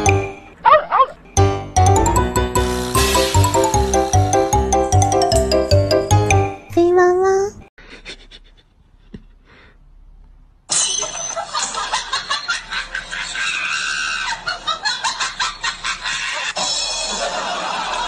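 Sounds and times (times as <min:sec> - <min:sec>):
people laughing and shrieking: 0:11.4 - 0:18.0.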